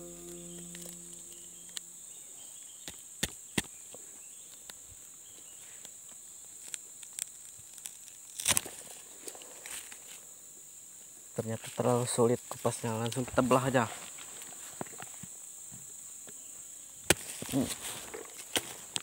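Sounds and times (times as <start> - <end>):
guitar note: 0.0 - 2.2
insects chirring: 0.0 - 19.0.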